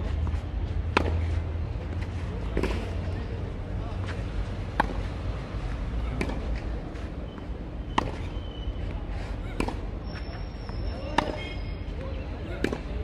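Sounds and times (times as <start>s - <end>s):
tennis balls struck with rackets: 0.2s - 3.2s, 4.0s - 7.1s, 7.8s - 8.3s, 9.5s - 10.3s, 11.0s - 11.6s, 12.5s - 13.0s.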